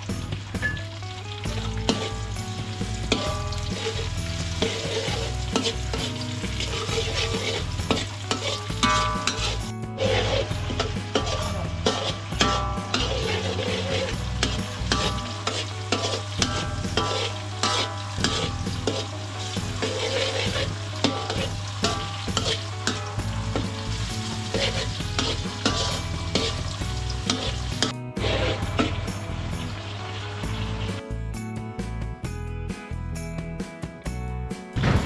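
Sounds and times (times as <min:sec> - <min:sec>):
food sizzling in a hot pan: 0:00.0 - 0:31.1
metal ladle scraping a wok: 0:01.7 - 0:30.6.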